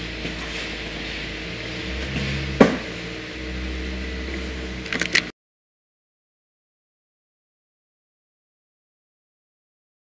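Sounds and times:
workshop machinery hum: 0.0s - 5.3s
sharp knock: 2.6s - 2.9s.

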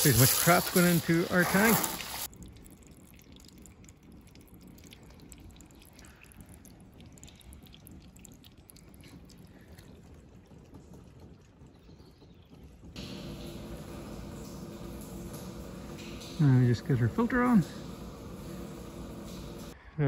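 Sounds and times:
water dripping in a gutter: 0.0s - 19.8s
low steady rumble: 13.0s - 19.8s.

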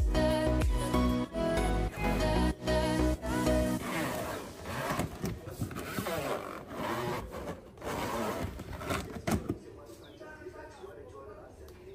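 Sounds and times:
plastic drawers scraping: 3.8s - 9.6s.

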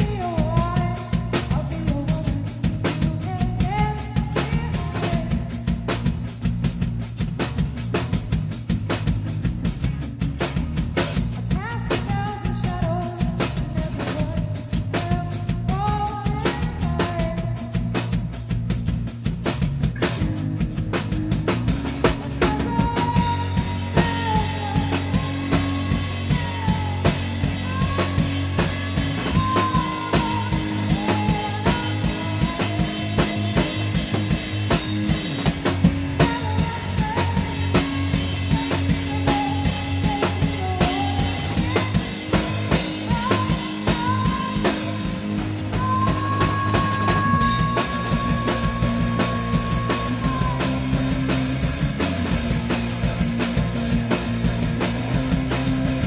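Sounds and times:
woman singing lead: 0.0s - 6.2s, 11.0s - 18.4s, 22.1s - 52.8s
drum kit steady beat: 0.0s - 56.0s
electric guitars: 0.0s - 56.0s.

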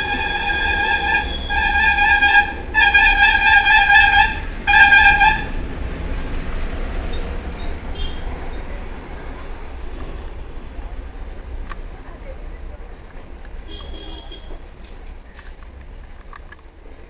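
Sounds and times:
buzzing horn blasts: 0.0s - 5.6s.

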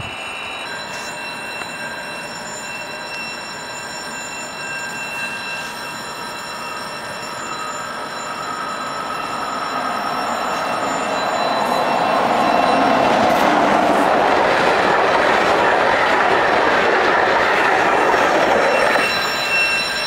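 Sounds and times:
train rail rumble: 0.0s - 20.0s.

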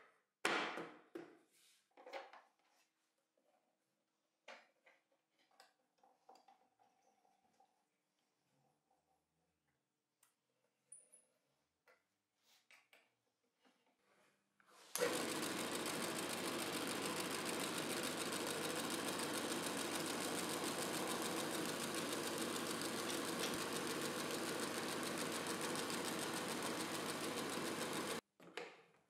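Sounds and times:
belt sander whirring: 15.0s - 28.2s.

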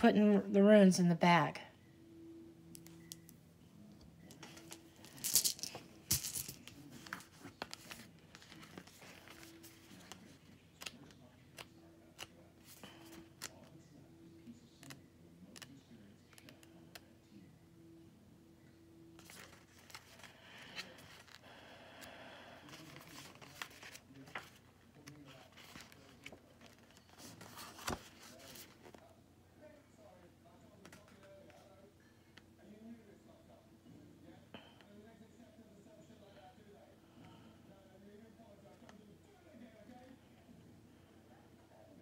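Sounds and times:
book pages rustling: 6.4s - 13.8s, 19.2s - 21.4s, 22.6s - 29.1s.

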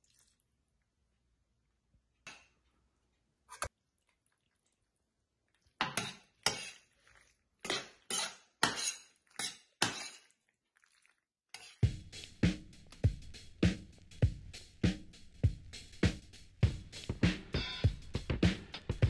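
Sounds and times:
metal spoon scraping frying pan: 5.8s - 7.0s, 7.6s - 10.4s, 11.5s - 11.9s.

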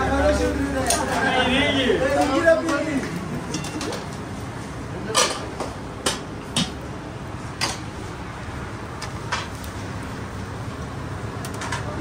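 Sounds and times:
low background noise: 0.0s - 12.0s
dishes and utensils clinking: 2.2s - 4.1s, 5.1s - 6.8s.

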